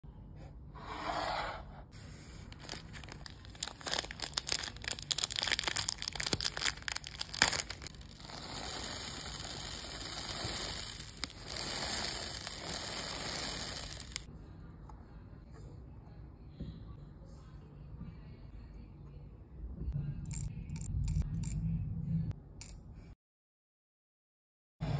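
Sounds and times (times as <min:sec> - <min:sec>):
beads streaming hiss: 0:02.4 - 0:14.3
plastic bag crinkle: 0:02.4 - 0:14.3
beads clicking on tabletop: 0:07.2 - 0:14.3.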